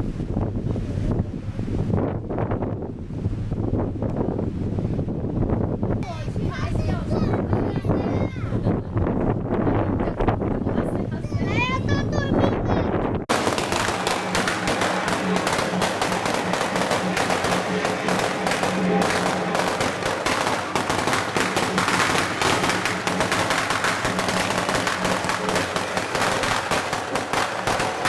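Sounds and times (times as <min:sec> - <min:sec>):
firecrackers crackling: 0:13.3 - 0:28.0.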